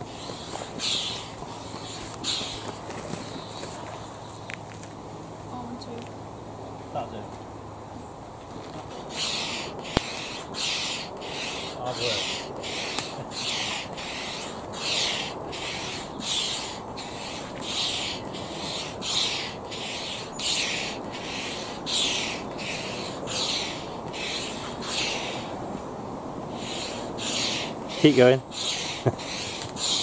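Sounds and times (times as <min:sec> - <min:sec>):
hand pump hissing air: 0:00.0 - 0:03.8, 0:09.0 - 0:25.6, 0:26.5 - 0:30.0.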